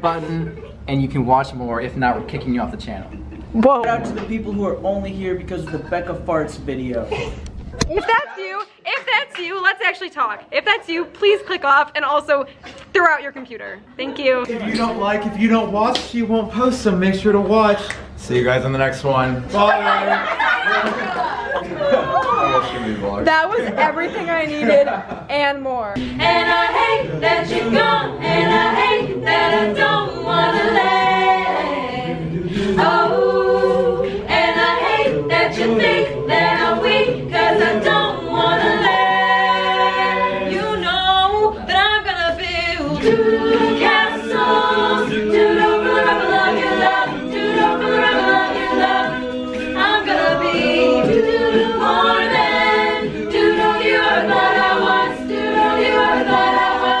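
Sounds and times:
a cappella group singing: 14.4s - 15.6s, 19.3s - 25.1s, 26.0s - 57.0s.

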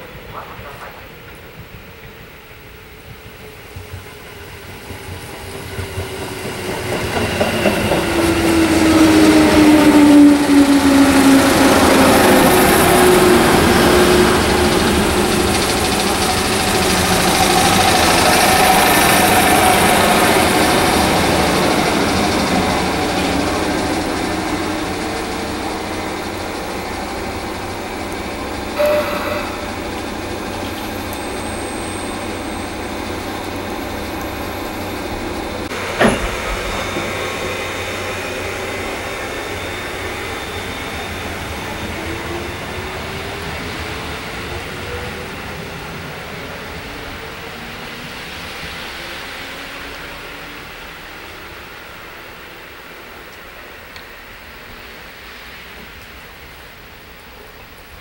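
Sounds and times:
wheels rumbling on rail: 0.0s - 58.0s
electric train braking to a stop: 3.5s - 52.6s
brief sharp sound: 28.8s - 29.9s.

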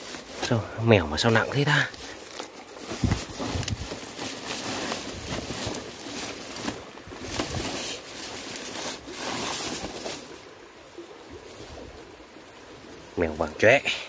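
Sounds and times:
plastic sack rustling and crackling: 0.0s - 10.5s
dry reeds rustling: 0.0s - 13.0s.

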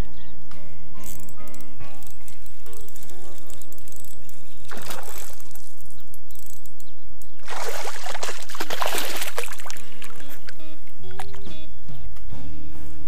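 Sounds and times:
fish splashing in water: 4.7s - 5.8s, 7.4s - 10.5s.

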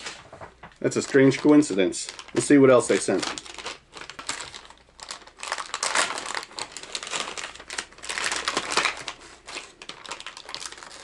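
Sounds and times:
plastic package crinkling: 0.0s - 11.0s.

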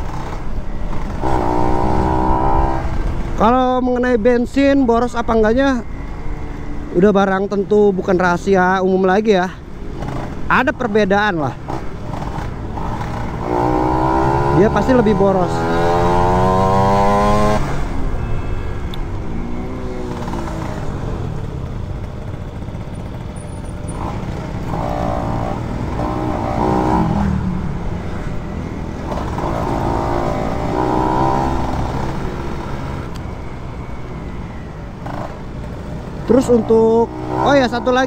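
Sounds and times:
motorcycle engine revving: 0.0s - 3.5s, 9.8s - 38.0s.

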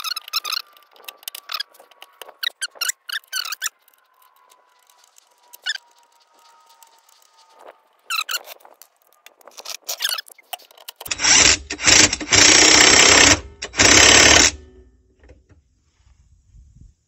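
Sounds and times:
ratchet wrench clicking: 10.7s - 14.6s.

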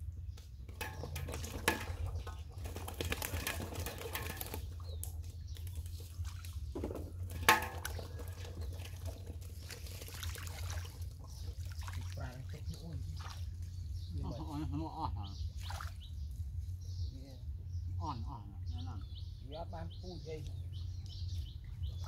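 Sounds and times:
muddy water splashing: 0.7s - 14.2s, 15.5s - 16.1s
steady low rumble: 4.6s - 22.0s.

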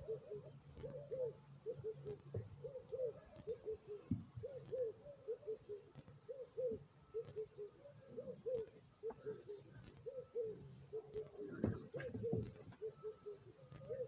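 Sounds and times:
dove cooing: 0.0s - 14.0s.

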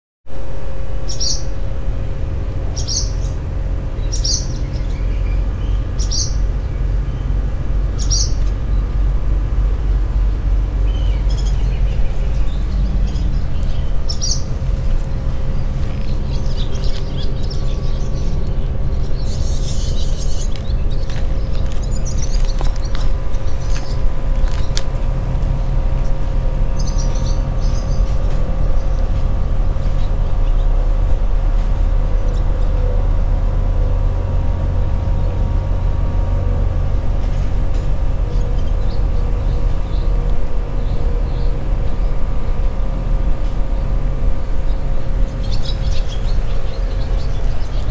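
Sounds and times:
faint constant hum: 0.3s - 47.9s
low rumble: 0.3s - 47.9s
swallows alarm calls and twittering: 1.0s - 1.6s, 2.6s - 9.0s, 10.4s - 24.9s, 25.9s - 30.8s, 37.2s - 42.5s, 44.4s - 47.9s.

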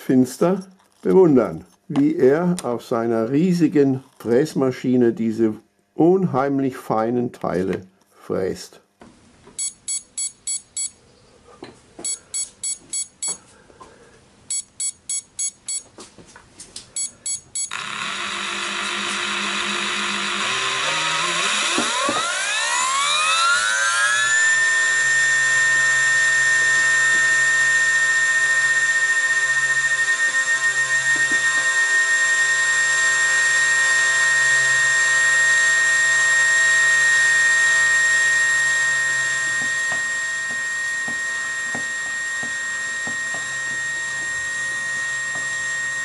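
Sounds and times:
short electronic beeps: 9.6s - 11.0s, 12.0s - 13.4s, 14.5s - 15.9s, 17.0s - 17.7s
spindle high-pitched whine: 16.9s - 46.0s.

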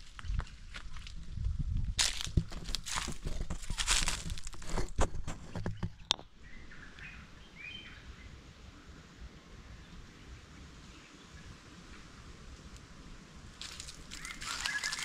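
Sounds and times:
rustling and crunching: 0.0s - 6.1s, 13.6s - 15.0s
faint bird chirps: 14.1s - 15.0s.

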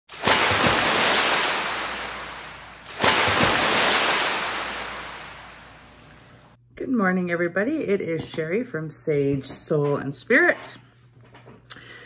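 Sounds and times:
hiss of washing water: 0.1s - 6.5s
ocean waves breaking: 0.1s - 6.6s.

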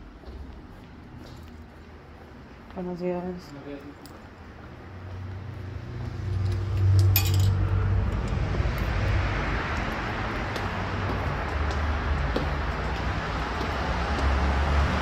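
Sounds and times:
street traffic rumble: 0.0s - 15.0s
metallic jingle: 6.7s - 8.4s.

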